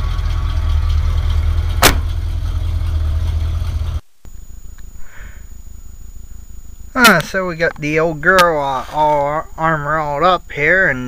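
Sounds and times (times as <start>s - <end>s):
truck engine idling: 0.0s - 4.0s.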